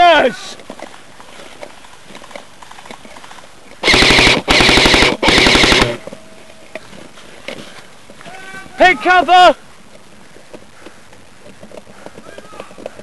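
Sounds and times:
airsoft rifle full-auto bursts: 3.8 - 6.0.

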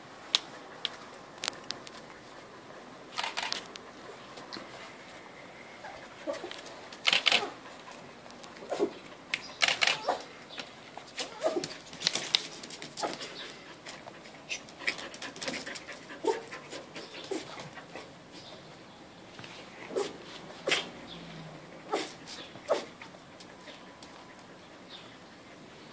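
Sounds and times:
puppy making little sounds: 5.8 - 10.4, 11.1 - 11.9, 19.9 - 21.0, 21.8 - 25.7.

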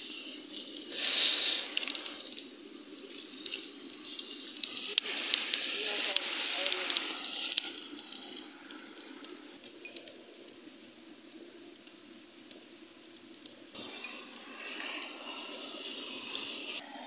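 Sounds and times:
campfire crackling and popping: 0.0 - 17.0
stream rushing: 0.8 - 2.4.

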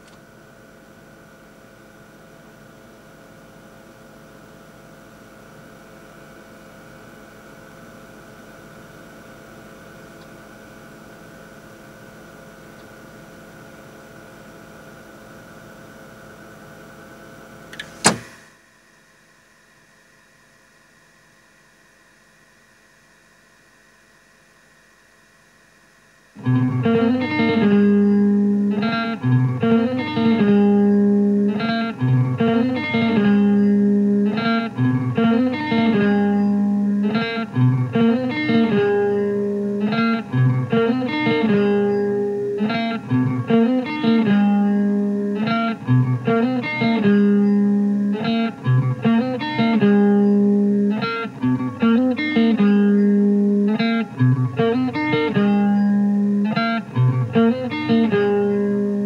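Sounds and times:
faint hiss: 0.0 - 57.6
guitar plucking repeated phrase: 26.4 - 59.0.

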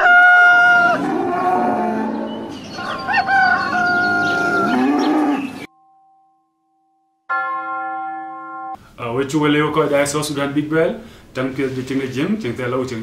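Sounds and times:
cow mooing: 0.0 - 5.7
rooster crowing: 0.0 - 5.7.

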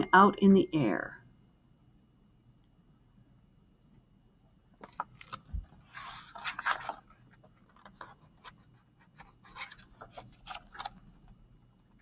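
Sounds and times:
paper rustling: 4.8 - 11.4.

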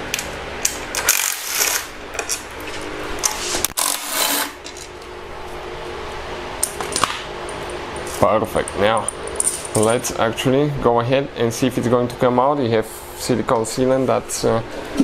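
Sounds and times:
wrench and bolts clinking: 6.9 - 10.1.

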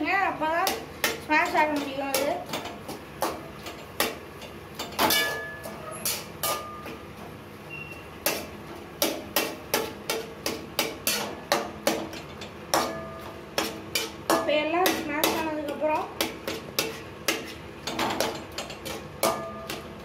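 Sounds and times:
vegetables being mashed: 0.3 - 7.3, 8.2 - 20.0
spatula knocking on metal pan: 0.6 - 4.2, 8.2 - 20.0.

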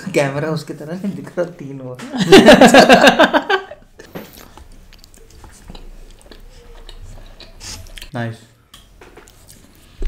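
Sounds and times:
man laughing loudly: 2.1 - 3.8
soft chewing: 4.0 - 10.0.

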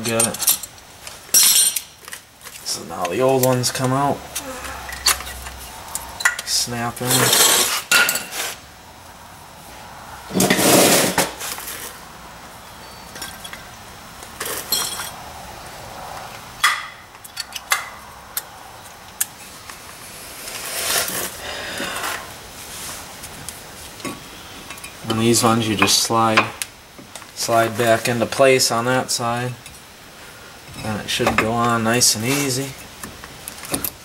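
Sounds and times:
metal clinking and scraping: 0.0 - 8.6, 14.4 - 15.2, 16.6 - 18.0.

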